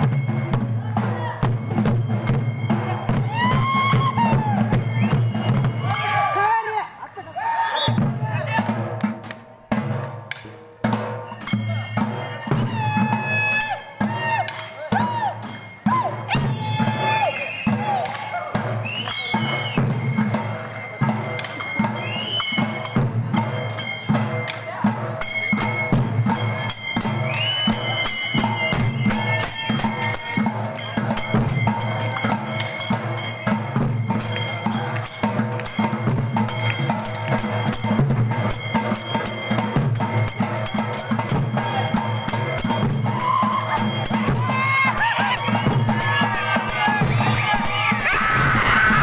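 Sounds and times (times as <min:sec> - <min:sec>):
barrel drums beaten with sticks: 0:00.0 - 0:06.0.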